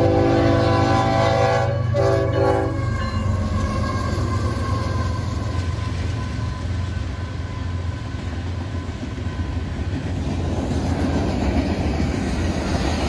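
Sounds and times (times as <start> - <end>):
train horn: 0.0 - 7.9
diesel locomotive engine rumble: 0.0 - 13.0
train wheels rolling: 1.8 - 13.0.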